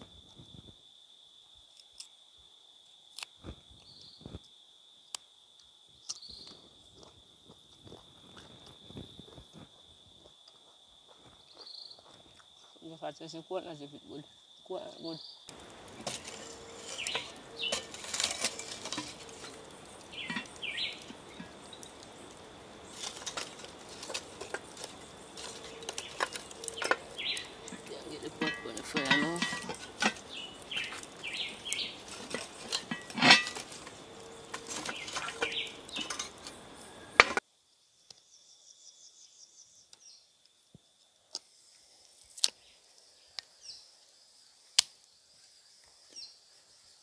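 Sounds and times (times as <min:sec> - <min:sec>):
high insect trill: 0:00.0 - 0:47.0
metal pot and lid clanking: 0:16.0 - 0:21.9, 0:22.9 - 0:37.4.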